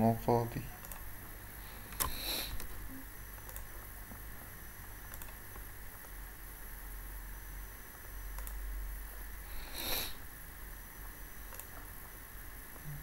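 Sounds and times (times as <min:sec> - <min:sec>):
microphone hum and hiss: 0:00.0 - 0:13.0
computer mouse clicks: 0:00.8 - 0:01.1, 0:01.9 - 0:02.7, 0:03.4 - 0:03.8, 0:05.1 - 0:05.6, 0:08.3 - 0:08.6, 0:11.5 - 0:11.8
short breathy noise: 0:09.5 - 0:10.2.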